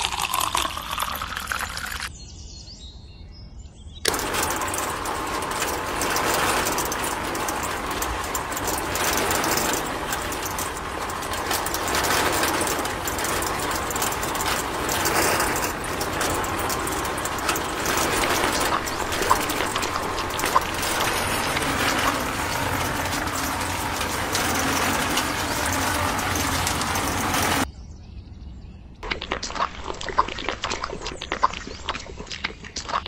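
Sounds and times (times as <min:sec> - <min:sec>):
toy motor rattling grind: 0:00.0 - 0:02.1, 0:04.1 - 0:27.7.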